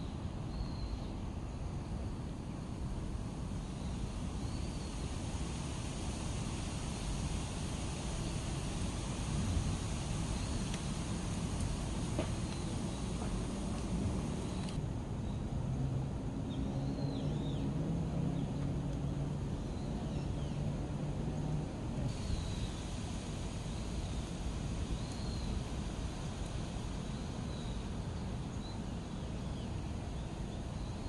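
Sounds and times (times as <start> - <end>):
low distant engine hum: 0.0 - 31.0
small birds chirping: 7.4 - 15.4, 22.1 - 23.0.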